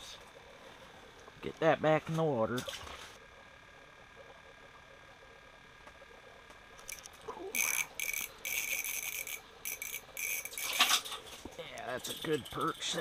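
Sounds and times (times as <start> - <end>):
fishing reel buzzing chirr: 6.8 - 13.0.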